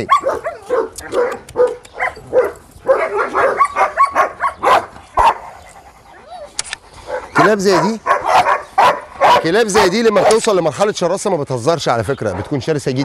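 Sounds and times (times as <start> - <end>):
dogs barking and whining: 0.0 - 10.4
sharp clicks: 0.9 - 2.0, 6.6 - 6.8.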